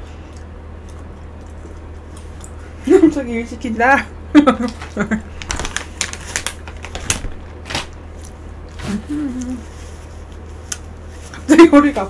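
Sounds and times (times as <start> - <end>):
steady low hum: 0.0 - 12.0
person humming: 8.8 - 9.7.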